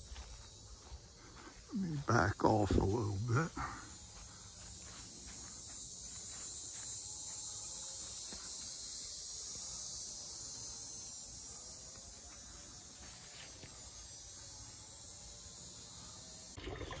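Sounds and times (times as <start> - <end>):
faint footsteps: 0.0 - 9.8
crickets chirping: 0.0 - 17.0.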